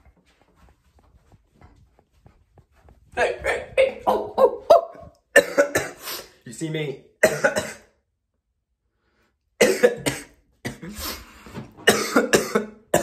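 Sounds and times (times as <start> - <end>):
man coughing hard: 5.4 - 6.0, 7.2 - 8.0, 9.6 - 11.0, 11.8 - 13.0.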